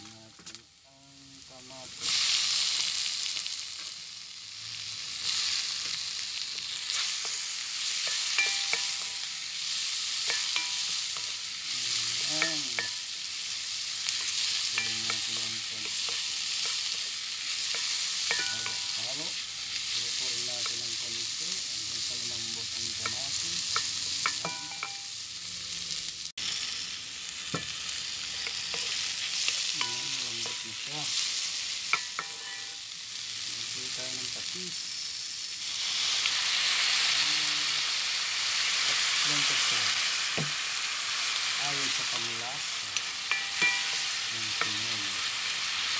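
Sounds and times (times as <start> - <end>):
vegetables sizzling in hot oil: 0.0 - 45.9
spatula scraping pot: 31.9 - 32.8.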